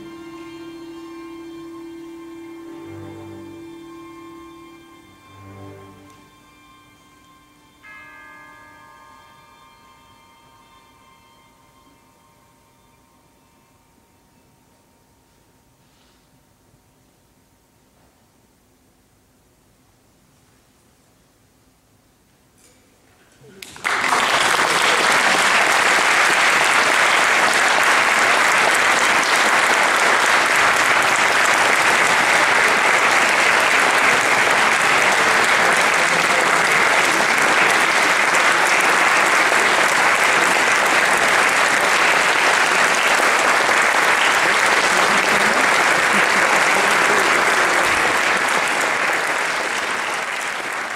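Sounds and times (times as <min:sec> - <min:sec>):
audience applauding: 0:23.5 - 0:50.9.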